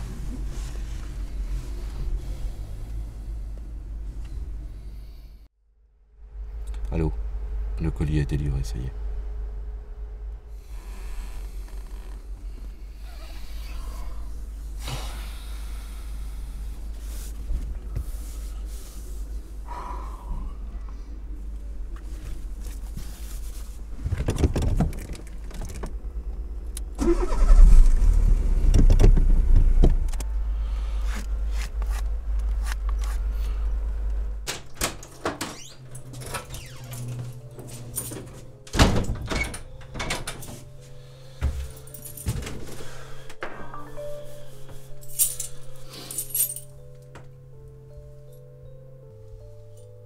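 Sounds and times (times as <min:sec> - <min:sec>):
car engine rumbling: 0:00.0 - 0:05.5, 0:06.2 - 0:49.8
keys jangling: 0:41.6 - 0:42.5, 0:45.0 - 0:46.8.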